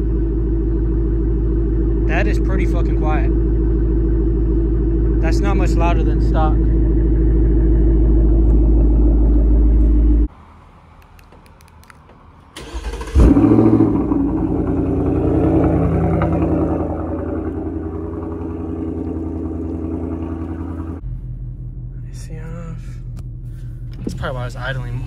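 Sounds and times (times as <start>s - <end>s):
car engine idling: 0.0s - 25.0s
engine starting and revving: 12.6s - 21.0s.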